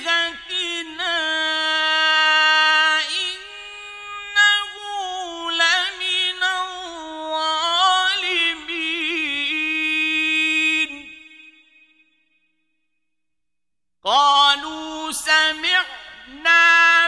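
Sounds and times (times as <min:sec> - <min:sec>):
man reciting melodically: 0:00.0 - 0:11.5, 0:14.0 - 0:17.0.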